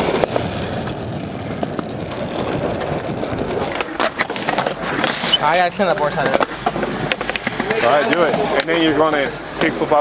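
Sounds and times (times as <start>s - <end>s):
skateboard wheels rolling on concrete: 0.0s - 10.0s.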